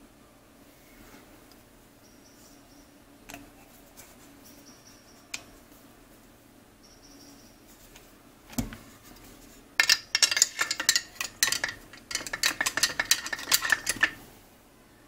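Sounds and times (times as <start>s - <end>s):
metallic clicks and scrapes: 9.8s - 14.2s.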